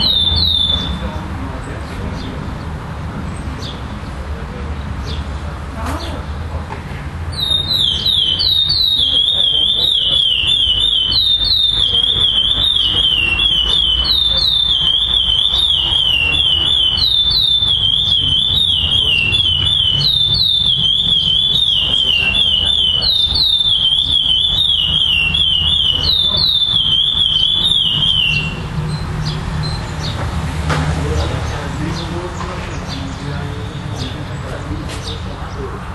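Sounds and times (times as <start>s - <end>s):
finch singing whistled notes: 0.0s - 1.1s, 7.3s - 30.2s.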